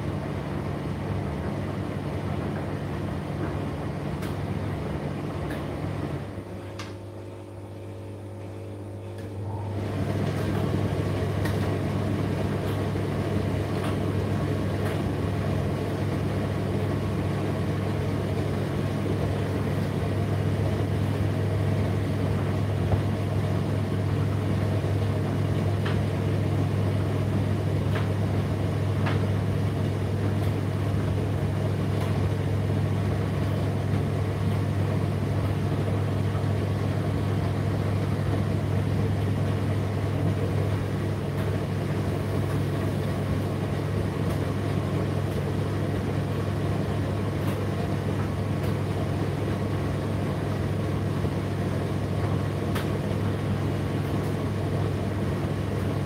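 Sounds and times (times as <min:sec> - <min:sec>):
tumble dryer humming: 0:00.0 - 0:56.0.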